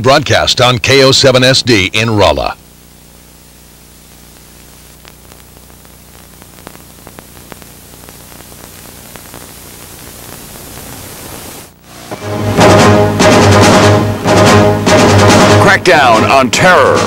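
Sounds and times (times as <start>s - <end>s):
steady hiss: 0.0s - 12.6s
low mains hum: 0.0s - 13.2s
faint crackles: 2.6s - 12.0s.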